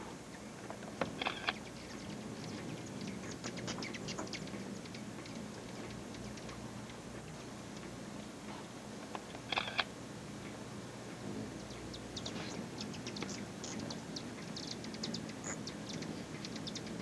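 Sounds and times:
hummingbirds chipping and twittering: 0.2 - 17.0.

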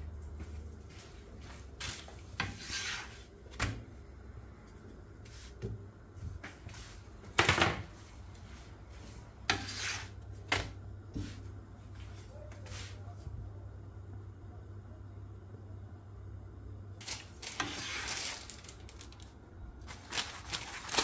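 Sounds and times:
low steady hum: 0.0 - 21.0
wooden stick scraping pan: 2.4 - 3.3, 9.4 - 10.2.

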